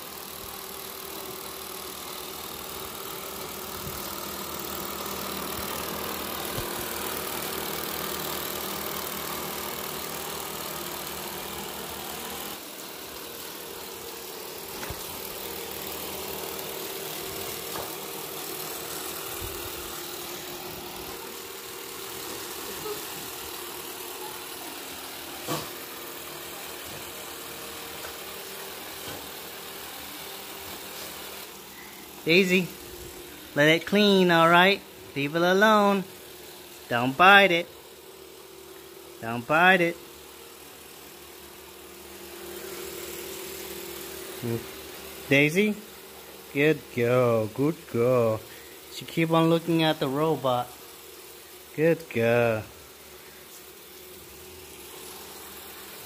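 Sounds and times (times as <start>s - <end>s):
robot vacuum whirring: 0.0s - 33.6s, 40.0s - 46.5s, 48.6s - 56.0s.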